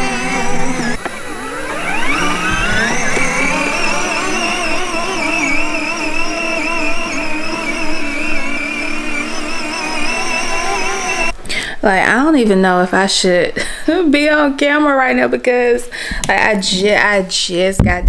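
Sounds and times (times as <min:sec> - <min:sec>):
ride-on toy car electric whine: 0:00.0 - 0:11.4.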